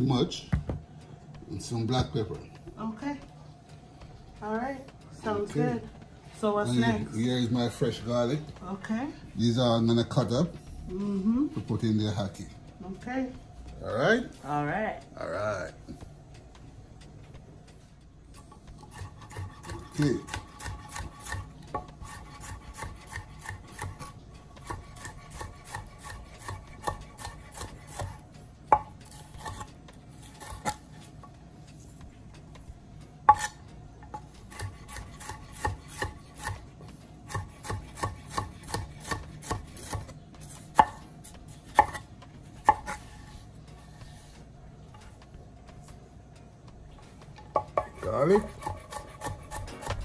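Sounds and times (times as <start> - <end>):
knife tapping on cutting board: 18.8 - 24.0, 34.1 - 36.6, 47.4 - 50.0.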